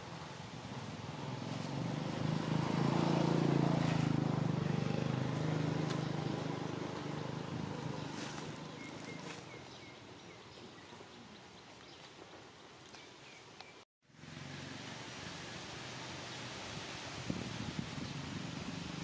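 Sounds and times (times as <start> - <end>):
vehicle engine passing by: 0.2 - 9.6, 14.2 - 19.0.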